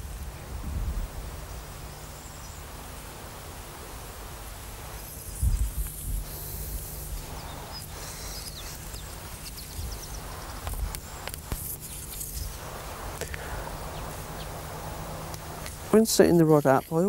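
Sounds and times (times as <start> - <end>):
small birds chirping: 4.9 - 17.0.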